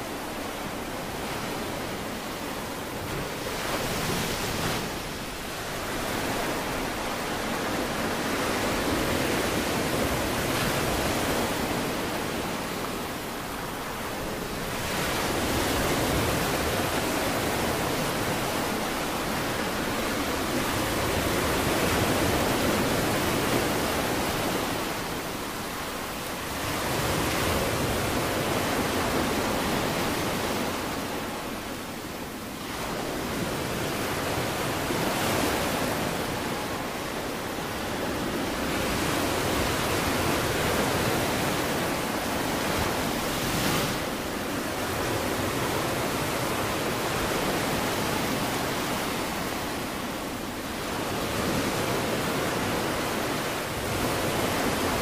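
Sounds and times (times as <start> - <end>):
ocean waves breaking: 0.0 - 55.0.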